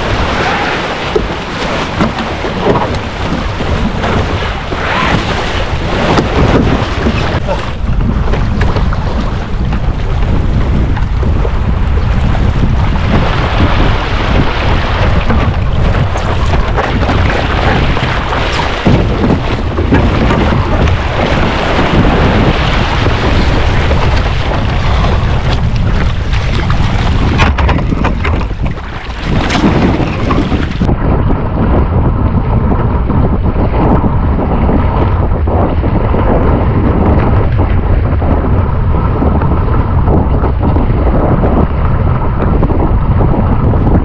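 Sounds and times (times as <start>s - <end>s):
water rushing and splashing: 0.0s - 31.0s
wind buffeting microphone: 0.0s - 44.0s.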